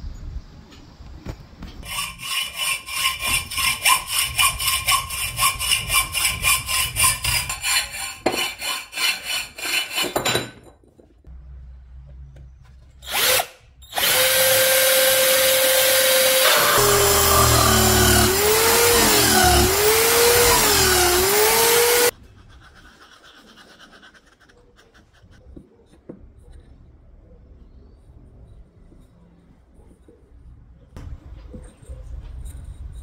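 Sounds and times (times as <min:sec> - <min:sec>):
hacksaw cutting a tube: 0:01.8 - 0:10.3, 0:13.0 - 0:22.1
cordless drill running: 0:13.0 - 0:22.1.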